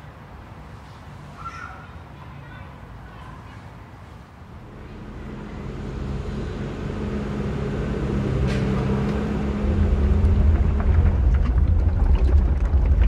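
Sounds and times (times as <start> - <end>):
truck engine humming: 4.5 - 13.0
concrete rumbling down chute: 4.6 - 13.0.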